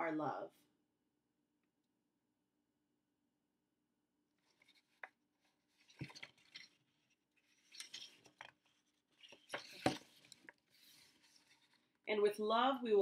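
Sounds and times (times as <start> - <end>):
paper rustling: 4.4 - 12.0.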